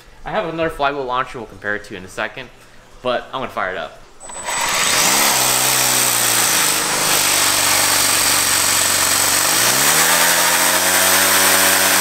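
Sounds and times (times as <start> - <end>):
small engine starting up: 4.2 - 12.0.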